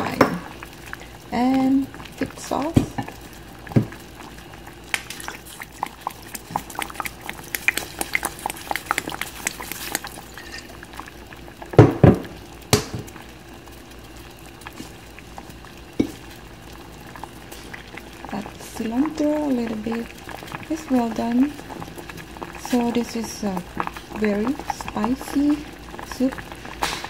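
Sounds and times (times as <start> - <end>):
broth boiling in a pot: 0.0 - 27.0
knocks in a pot: 11.8 - 13.1, 16.0 - 16.2.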